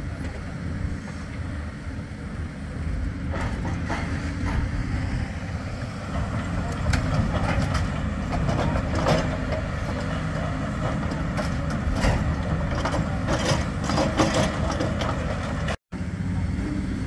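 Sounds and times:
excavator diesel engines running: 0.0 - 17.0
rubble and metal crunching: 6.1 - 15.8.

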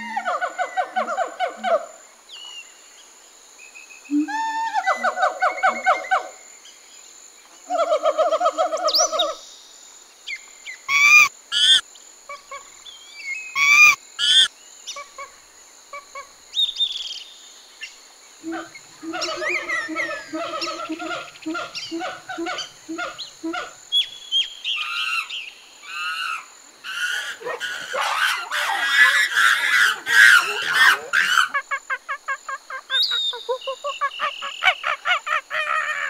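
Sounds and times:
high whine of insects: 0.0 - 36.0
monkeys shrieking: 13.6 - 14.5, 18.4 - 23.8, 24.8 - 36.0
monkeys chattering: 18.4 - 23.8, 26.0 - 36.0.

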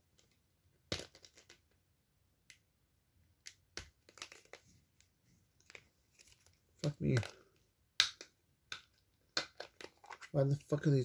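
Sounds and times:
plastic packaging clicking and crackling: 3.4 - 4.6.

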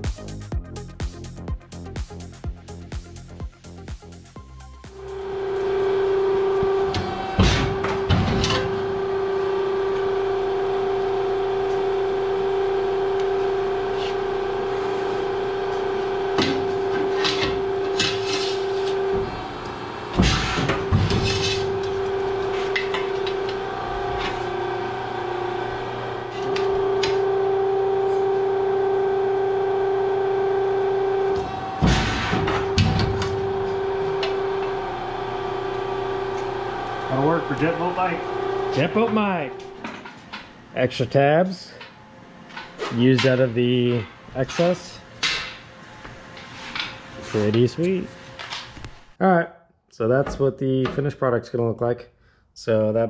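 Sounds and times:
press brake humming: 5.0 - 40.6.

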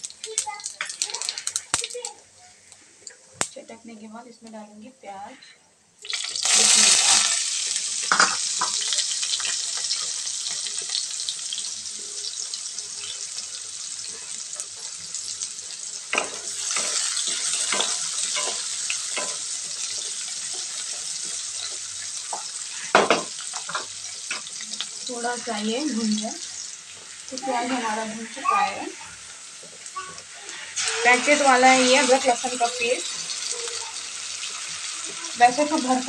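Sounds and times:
onion sizzling in hot oil: 0.0 - 3.7, 6.0 - 36.0
spatula scraping a pan: 14.0 - 24.6, 25.3 - 33.4.

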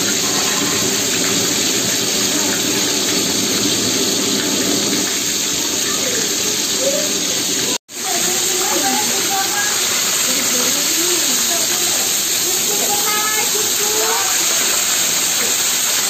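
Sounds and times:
fish sizzling in hot oil: 0.0 - 16.0.

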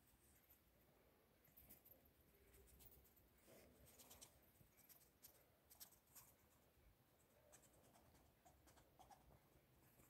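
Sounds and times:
squirrel claws scratching fabric: 1.5 - 6.7.

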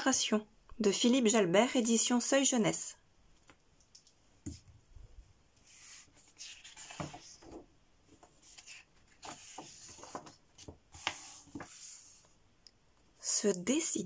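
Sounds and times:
book pages rustling: 5.6 - 12.4.

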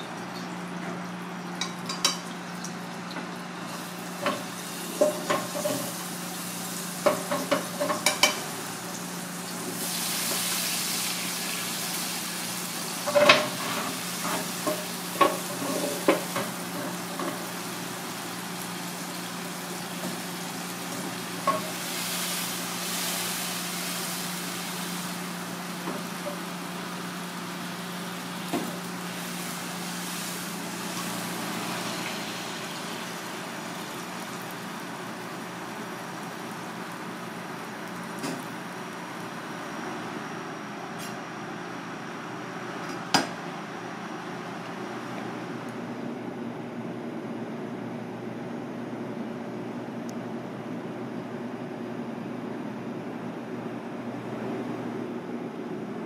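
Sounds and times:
sauce sizzling in a pan: 3.5 - 39.6.

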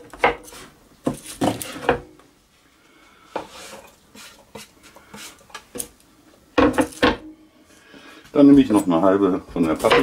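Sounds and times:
soft scraping: 3.4 - 5.5.

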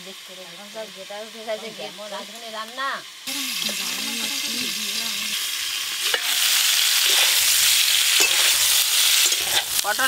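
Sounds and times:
vegetables sizzling in oil: 0.0 - 10.0
metal spatula stirring: 6.0 - 9.9.

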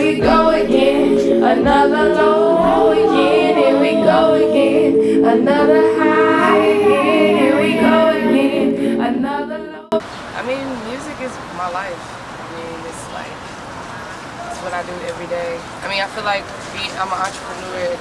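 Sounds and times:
sustained chord through a pa: 0.0 - 10.0
person singing: 0.0 - 10.1.

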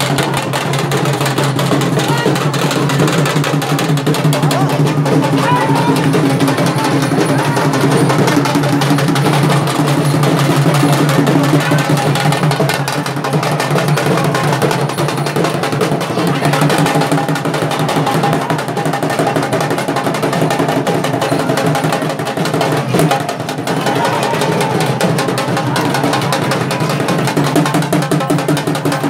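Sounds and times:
barrel drums beaten fast: 0.0 - 29.0.

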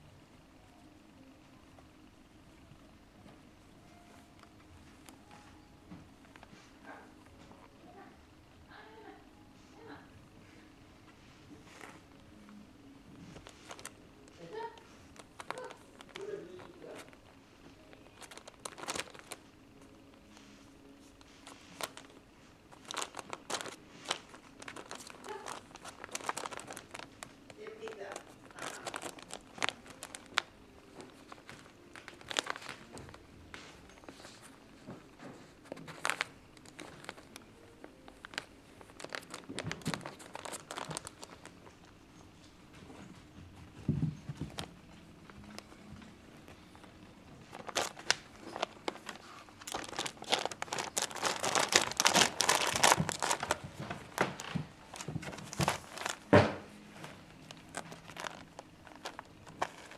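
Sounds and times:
newspaper crinkling under paws: 13.2 - 42.0, 43.0 - 59.9.

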